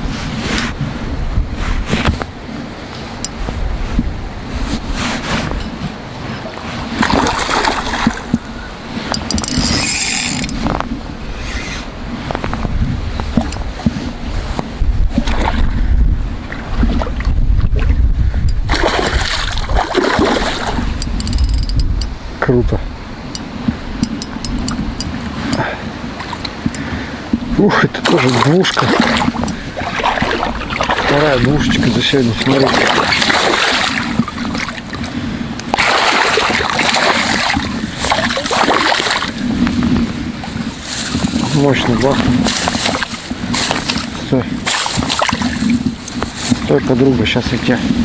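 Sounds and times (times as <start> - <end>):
steady low rumble: 0.0 - 48.0
fish thrashing and splashing: 6.4 - 8.4, 18.6 - 21.4, 28.0 - 35.1, 35.7 - 39.4, 42.2 - 46.6.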